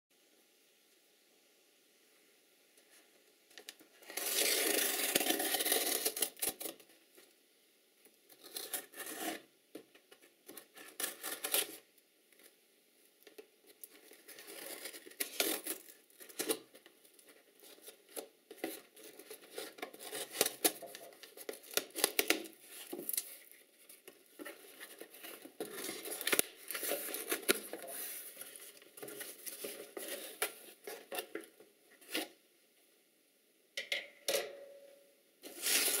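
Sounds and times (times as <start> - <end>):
tape tearing: 4.0 - 6.8, 8.3 - 9.5, 10.5 - 11.8, 14.1 - 16.7, 17.6 - 23.6, 24.5 - 31.4, 35.4 - 36.0
paper packing rustling: 13.9 - 31.4, 35.4 - 36.0.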